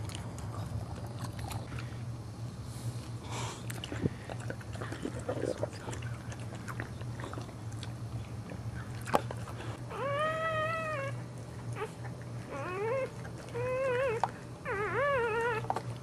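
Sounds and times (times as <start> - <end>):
puppy crying: 9.9 - 16.0.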